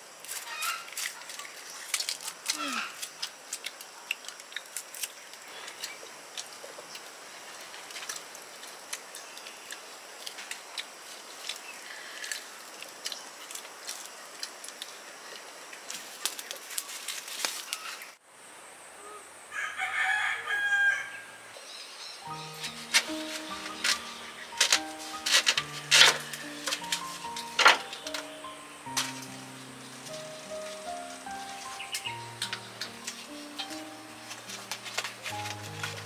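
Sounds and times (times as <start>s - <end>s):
rooster crowing: 19.5s - 21.5s.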